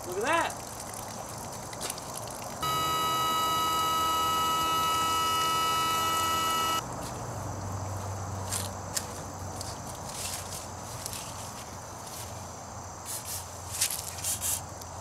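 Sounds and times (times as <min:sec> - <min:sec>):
electric pump whining: 0:02.6 - 0:06.8.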